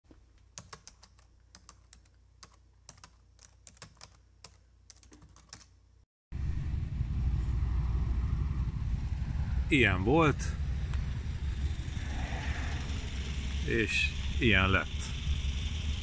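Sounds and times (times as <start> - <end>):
keyboard typing clicks: 0.6 - 5.7
faint low hum: 5.7 - 16.0
low rumbling outdoor noise: 6.3 - 16.0.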